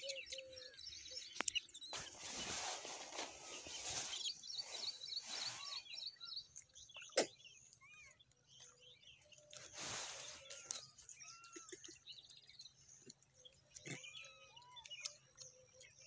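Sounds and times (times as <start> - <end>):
small birds chirping: 0.0 - 16.0
rustling noise: 1.9 - 5.8, 9.6 - 11.0.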